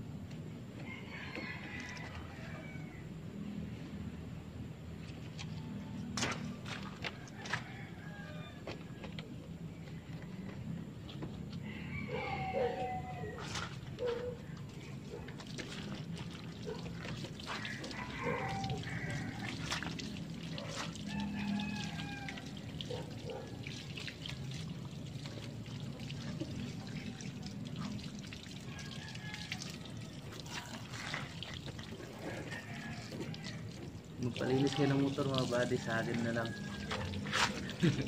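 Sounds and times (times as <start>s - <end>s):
water running from hose: 12.2s - 38.0s.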